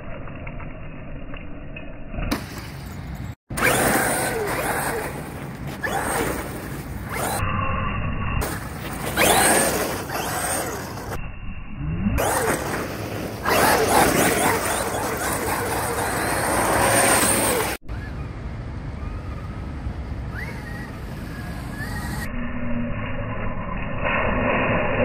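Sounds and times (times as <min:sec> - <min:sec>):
electric motor whining: 0:03.5 - 0:07.4, 0:09.1 - 0:11.2, 0:12.2 - 0:17.8
tyres scrabbling over dirt: 0:03.6 - 0:07.4, 0:08.4 - 0:11.2, 0:12.2 - 0:17.8.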